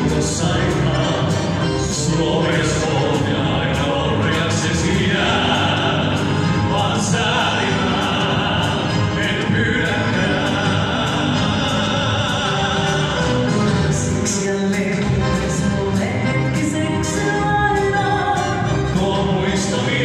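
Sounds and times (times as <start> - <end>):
live band playing: 0.0 - 20.0
operatic singing with vibrato: 0.0 - 20.0.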